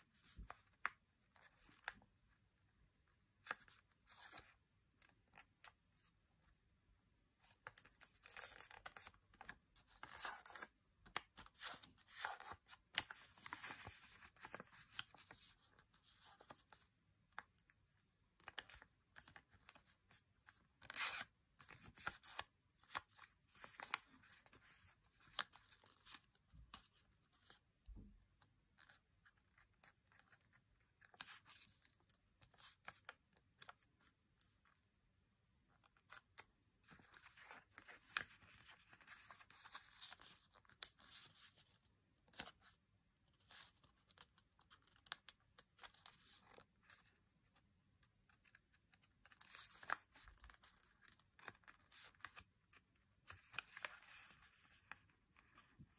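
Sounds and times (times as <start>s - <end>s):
paper rustling and crinkling: 7.5s - 16.9s.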